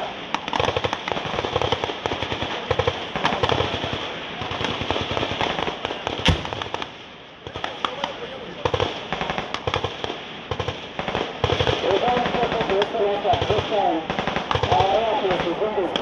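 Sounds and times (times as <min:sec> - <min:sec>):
small-arms gunfire cracks: 0:00.3 - 0:06.9
loud bang: 0:06.2 - 0:06.9.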